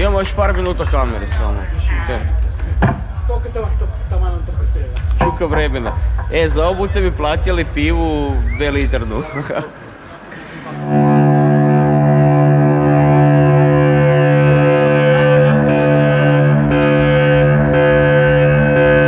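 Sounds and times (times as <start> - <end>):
short percussive hits: 4.9 - 6.5
electric guitar and bass chord: 10.8 - 19.0.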